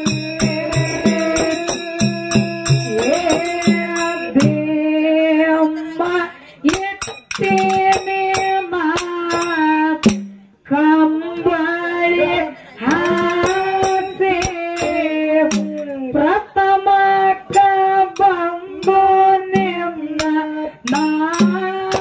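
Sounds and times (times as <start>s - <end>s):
small hand cymbals clashing: 0.0s - 4.5s, 6.7s - 10.4s, 12.9s - 15.9s, 20.2s - 22.0s
steady drum beat: 0.0s - 4.7s, 12.8s - 15.9s
person singing long notes: 0.0s - 10.0s.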